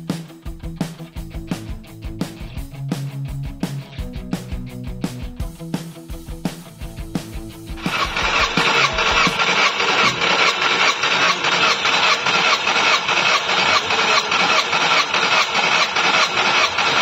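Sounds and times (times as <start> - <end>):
starter motor cranking engine: 7.0 - 17.0.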